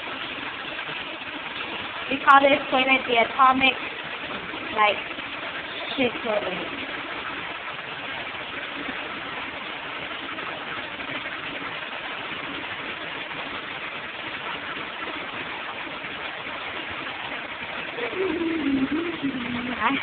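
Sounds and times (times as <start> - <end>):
toilet flush water rushing: 0.0 - 20.0.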